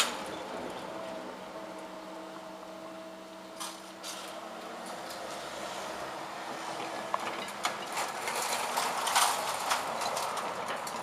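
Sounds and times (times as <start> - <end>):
tyres clicking over rails: 3.6 - 11.0.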